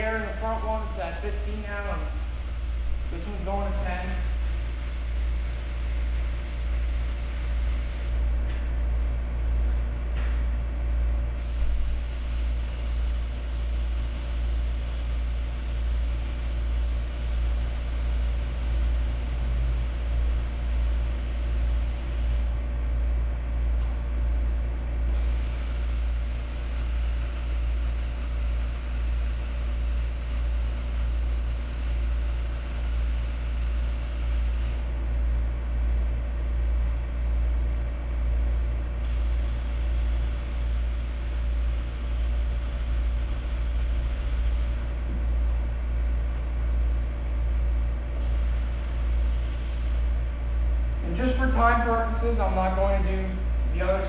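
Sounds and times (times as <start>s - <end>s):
steady low hum: 0.0s - 54.0s
air hissing from tire valve: 0.3s - 3.2s, 11.3s - 19.2s, 20.0s - 22.6s, 25.1s - 29.0s, 30.7s - 35.0s, 38.4s - 45.0s, 48.2s - 50.2s.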